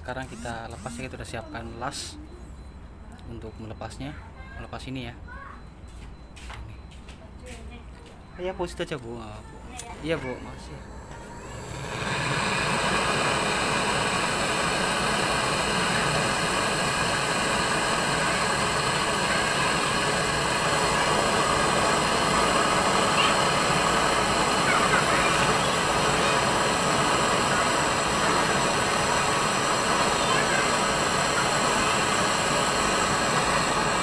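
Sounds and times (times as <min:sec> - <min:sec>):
torch flame hissing: 0:09.6 - 0:34.0.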